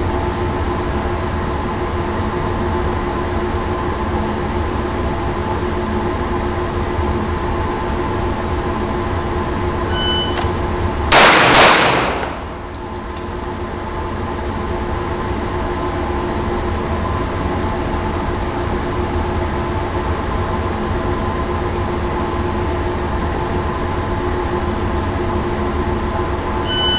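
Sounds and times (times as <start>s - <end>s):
steady loud hum: 0.0s - 26.9s
shot timer beep: 9.9s - 10.6s, 26.7s - 26.9s
handgun shots: 10.3s - 13.6s.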